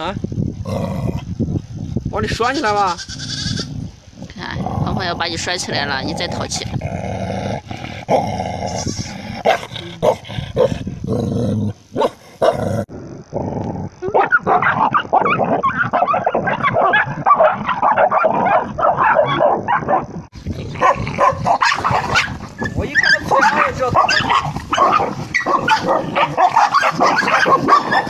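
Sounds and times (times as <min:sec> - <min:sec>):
puppies growling: 0:03.6 - 0:28.0
puppies yipping: 0:20.8 - 0:28.0.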